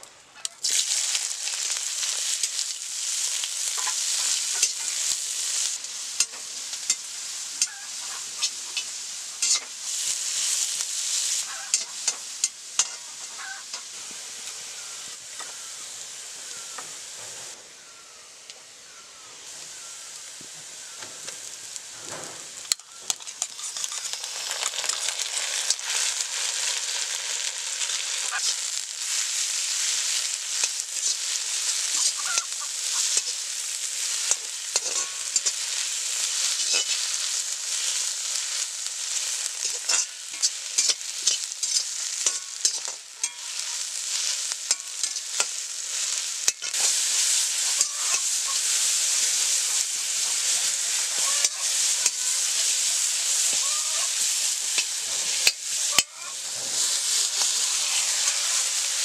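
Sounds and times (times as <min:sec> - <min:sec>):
food sizzling in a wok: 0:00.0 - 0:59.0
water poured into hot pan: 0:00.6 - 0:06.2, 0:23.4 - 0:31.2
metal spatula scraping a pan: 0:00.6 - 0:15.6, 0:22.0 - 0:26.6, 0:29.8 - 0:38.1, 0:39.2 - 0:59.0.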